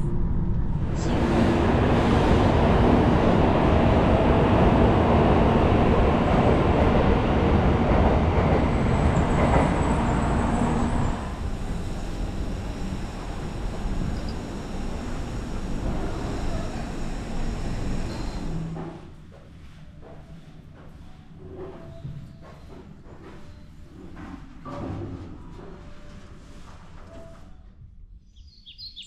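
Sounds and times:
train rushing rumble: 0:00.0 - 0:19.2.

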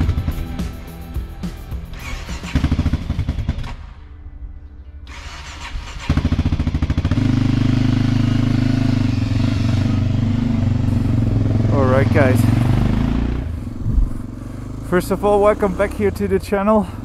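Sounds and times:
motorcycle engine running: 0:00.0 - 0:04.0, 0:05.2 - 0:17.0
engine cranking: 0:01.9 - 0:03.9, 0:05.1 - 0:10.0.

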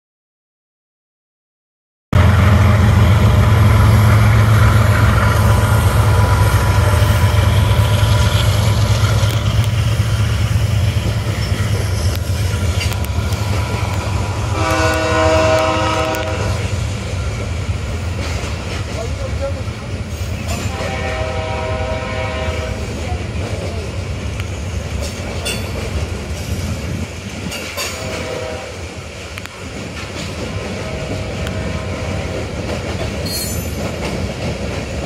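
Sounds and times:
diesel locomotive engines rumbling: 0:02.2 - 0:35.0
freight cars rolling on rails: 0:02.2 - 0:35.0
train horn blast: 0:14.4 - 0:16.8, 0:20.5 - 0:23.0, 0:27.8 - 0:28.8, 0:30.8 - 0:32.4.

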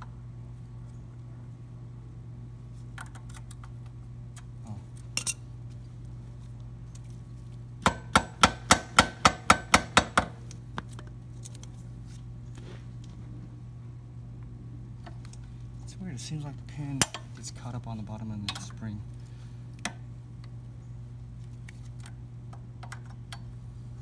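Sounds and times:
faint clicks of parts handled: 0:10.5 - 0:13.2.

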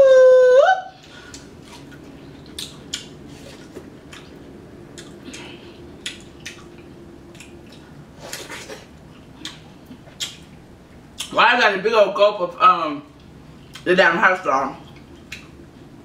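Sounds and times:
wet chewing and mouth smacks: 0:01.3 - 0:11.3, 0:14.8 - 0:15.6.

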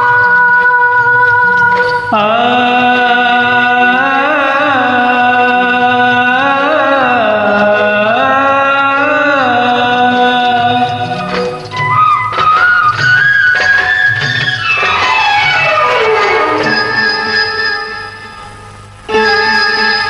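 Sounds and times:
karaoke backing track: 0:00.0 - 0:20.0
man singing long note: 0:02.1 - 0:11.2.

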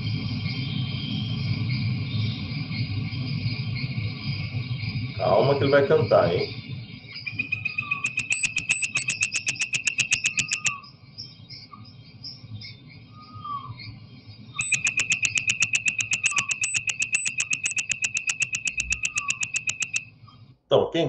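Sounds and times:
faint animal chirps: 0:07.2 - 0:10.7, 0:14.6 - 0:20.0
frog calling in fast high notes: 0:14.6 - 0:20.0.

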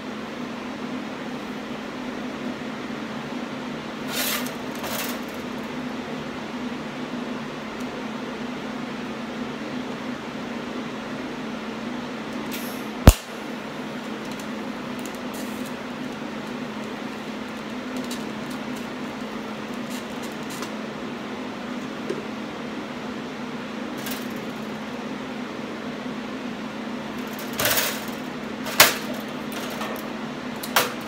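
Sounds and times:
workshop hum: 0:00.0 - 0:31.0
arc welder bursts: 0:04.0 - 0:05.6, 0:12.5 - 0:20.6
sharp loud click: 0:12.5 - 0:13.4.

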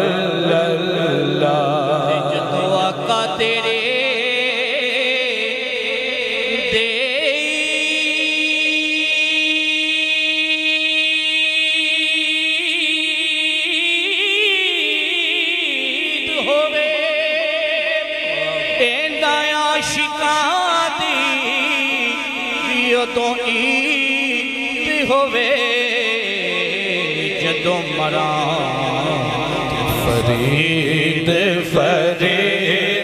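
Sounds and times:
men singing: 0:00.0 - 0:05.6, 0:15.8 - 0:33.0.

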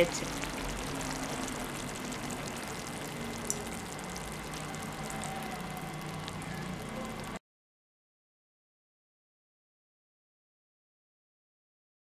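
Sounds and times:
curry simmering hiss: 0:00.0 - 0:07.4.

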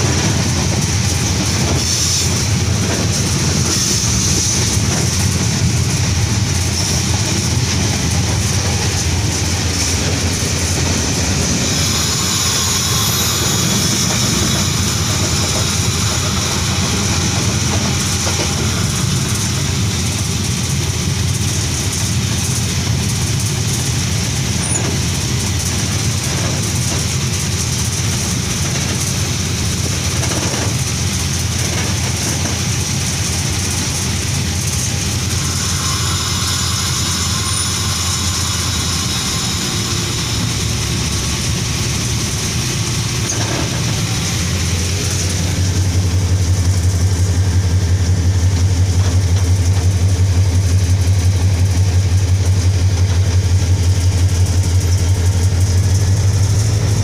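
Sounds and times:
diesel locomotive engine drone: 0:00.0 - 0:57.0
wheels rumbling on rails: 0:00.0 - 0:57.0
rushing air: 0:32.6 - 0:51.2.

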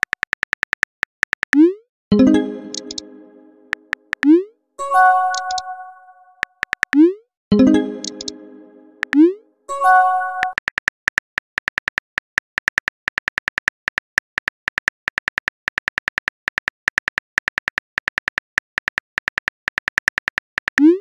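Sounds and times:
keyboard typing clicks: 0:00.0 - 0:04.5, 0:05.2 - 0:05.8, 0:06.4 - 0:09.4.

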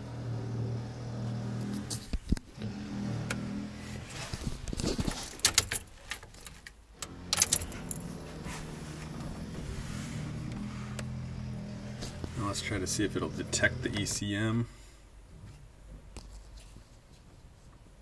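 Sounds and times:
clicks and rattles of handling cables: 0:04.3 - 0:07.9
low hum: 0:07.0 - 0:15.2.

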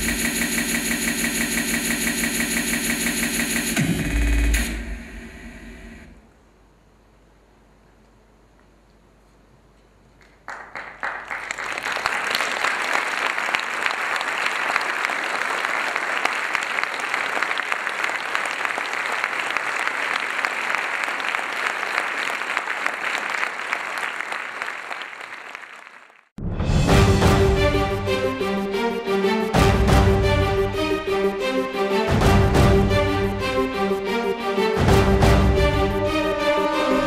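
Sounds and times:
audience applauding: 0:10.2 - 0:26.3.

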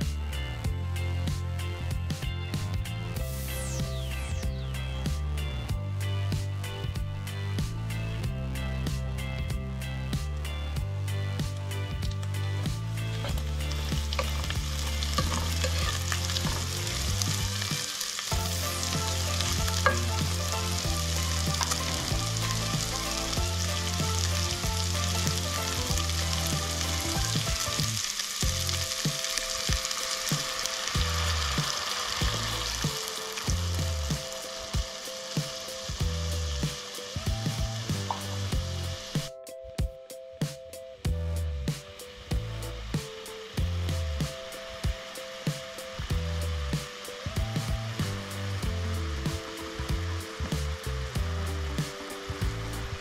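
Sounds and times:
background music: 0:00.0 - 0:53.0
meat sizzling in a pan: 0:11.7 - 0:39.3, 0:42.0 - 0:53.0.

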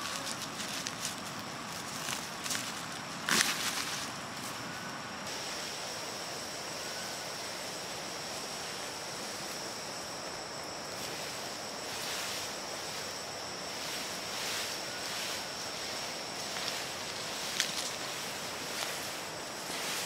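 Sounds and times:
insect high-pitched call: 0:00.0 - 0:20.0
soft even hiss: 0:00.0 - 0:20.0.

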